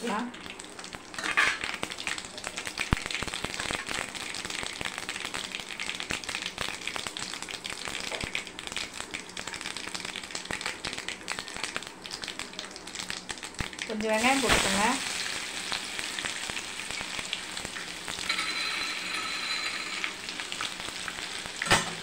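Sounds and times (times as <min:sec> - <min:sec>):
spices sizzling in hot oil: 0:00.0 - 0:22.0.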